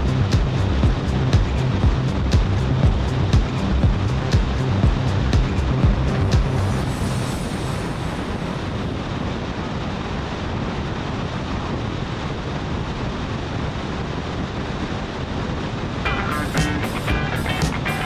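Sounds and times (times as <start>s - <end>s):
music: 0.0s - 9.0s, 16.0s - 18.0s
road and engine noise: 0.0s - 9.9s
wind rushing over microphone: 0.0s - 17.8s.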